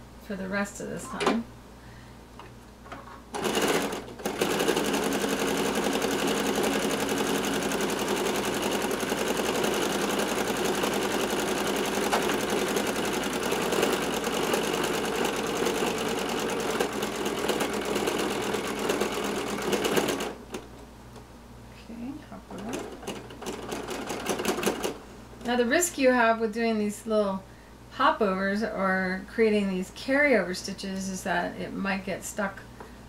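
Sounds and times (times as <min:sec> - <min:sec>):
sewing machine stitching: 0:03.3 - 0:20.6, 0:22.6 - 0:25.0.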